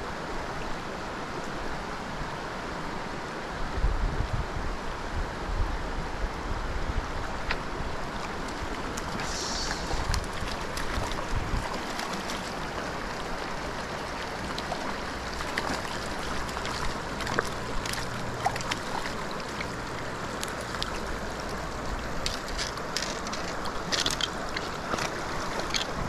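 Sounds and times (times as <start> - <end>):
creek rushing over rocks: 0.0 - 26.0
faint clicks and splashes: 7.4 - 26.0.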